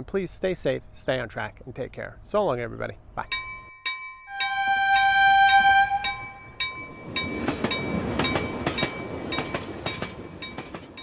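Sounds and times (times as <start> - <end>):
bell ringing: 3.3 - 11.0
train horn: 4.3 - 6.4
train wheels clicking over rails: 6.1 - 11.0.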